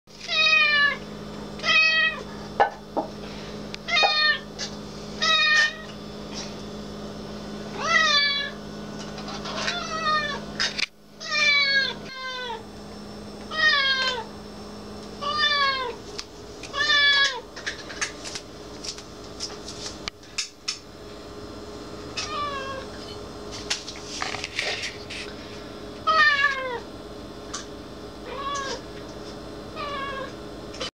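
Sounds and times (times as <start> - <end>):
cat meowing: 3.9 - 4.4, 13.5 - 14.3, 26.1 - 26.8, 29.8 - 30.3.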